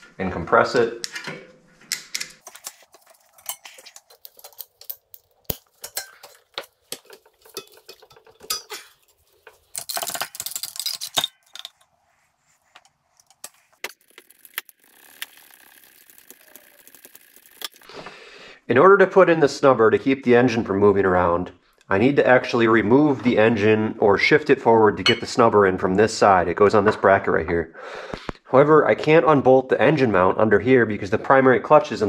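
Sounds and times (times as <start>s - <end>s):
hand tools clicking on metal: 1.9s - 11.8s.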